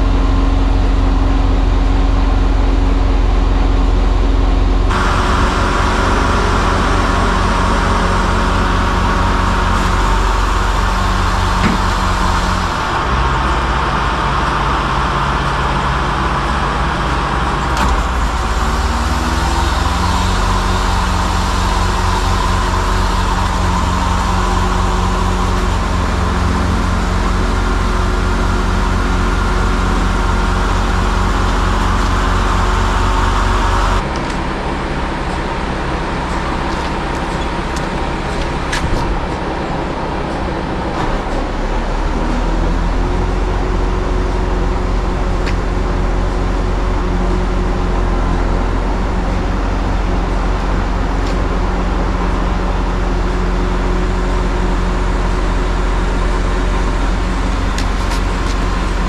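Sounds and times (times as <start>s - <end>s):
diesel truck engine running: 0.0s - 59.0s
high whine: 0.0s - 59.0s.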